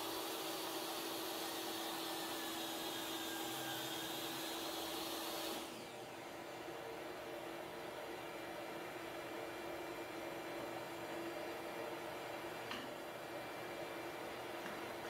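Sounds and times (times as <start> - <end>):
table saw motor whine: 0.0 - 6.6.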